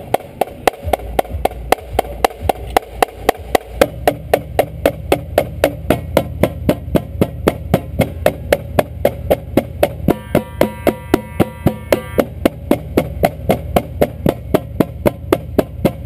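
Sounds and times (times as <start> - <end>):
drumline stick strokes: 0.0 - 16.0.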